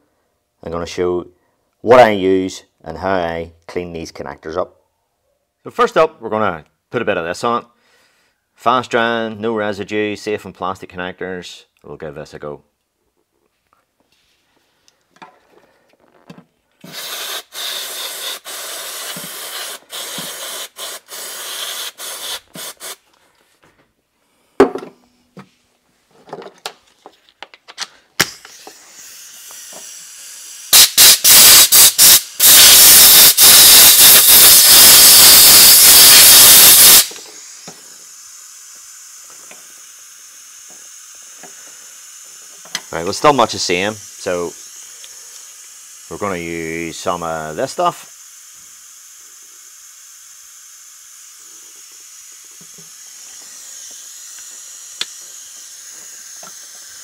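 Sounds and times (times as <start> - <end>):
aerosol can spraying: 16.8 - 23.1, 28.2 - 57.0
knock: 24.6 - 25.0.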